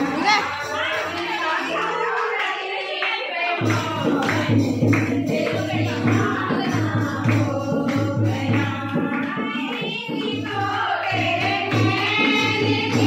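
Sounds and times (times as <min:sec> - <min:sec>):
women singing together: 0:00.0 - 0:13.0
hand drum beat: 0:03.6 - 0:13.0.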